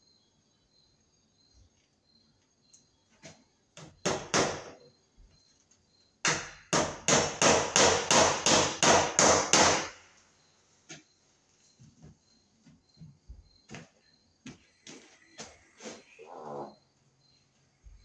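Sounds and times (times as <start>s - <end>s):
hammer striking staples into wood: 3.8s - 4.8s, 6.2s - 10.0s.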